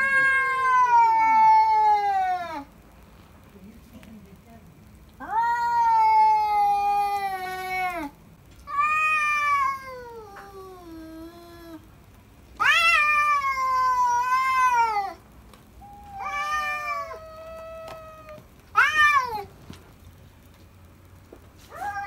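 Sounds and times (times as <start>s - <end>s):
cats yowling: 0.0s - 2.8s, 5.2s - 11.9s, 12.6s - 15.2s, 15.8s - 19.6s, 21.6s - 22.0s.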